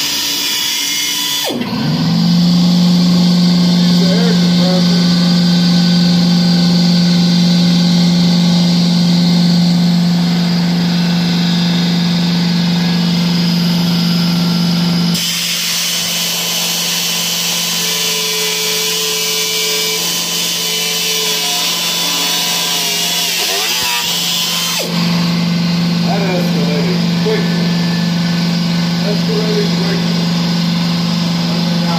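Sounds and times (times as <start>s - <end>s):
cutting wheel cutting plastic: 0.0s - 1.8s, 12.9s - 31.9s.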